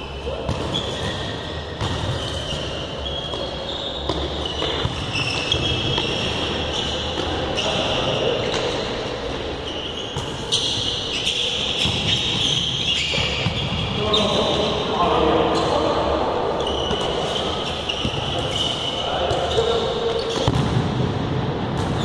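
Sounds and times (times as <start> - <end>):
ball kicked and bouncing: 20.3 - 21.0.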